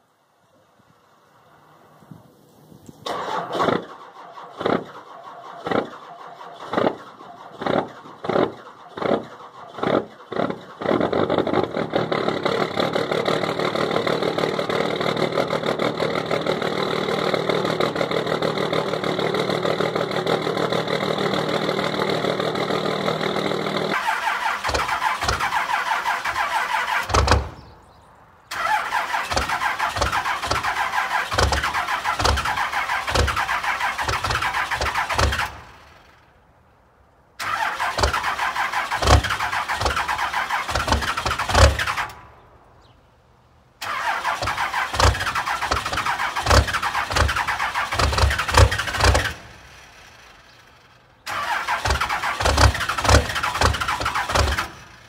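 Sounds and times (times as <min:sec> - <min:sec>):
diesel engine running: 0:00.8 - 0:27.9, 0:28.5 - 0:36.8, 0:43.8 - 0:55.0
diesel engine cranking: 0:02.7 - 0:55.0.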